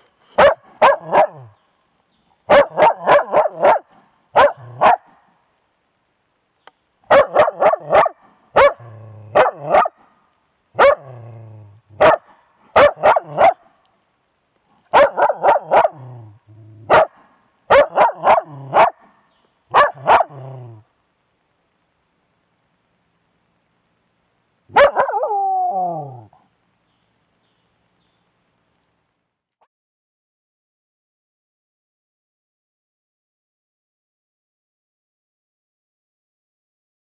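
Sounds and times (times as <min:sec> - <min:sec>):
dog barking: 0:00.4 - 0:01.5, 0:02.5 - 0:05.2, 0:07.1 - 0:10.0, 0:10.8 - 0:11.2, 0:12.0 - 0:13.6, 0:14.9 - 0:16.2, 0:16.9 - 0:19.0, 0:19.7 - 0:20.5, 0:24.7 - 0:25.5.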